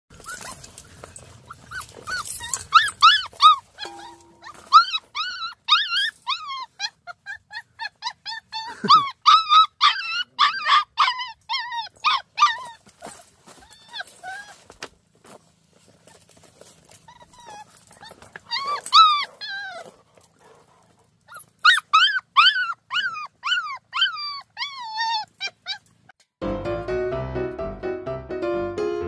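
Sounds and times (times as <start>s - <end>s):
puppies whining and yelping: 0.2s - 14.8s, 16.1s - 26.2s.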